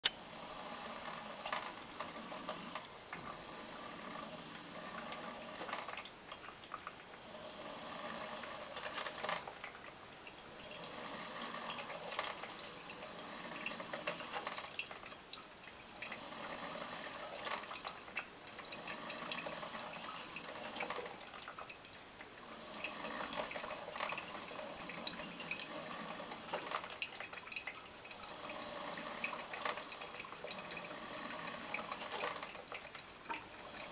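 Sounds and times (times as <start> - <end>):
coffee maker gurgling and sputtering: 0.0 - 33.9.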